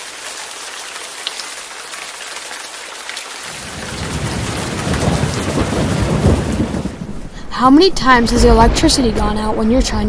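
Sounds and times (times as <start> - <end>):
steady rain hiss: 0.0 - 9.7
low rumble of thunder: 3.5 - 10.0.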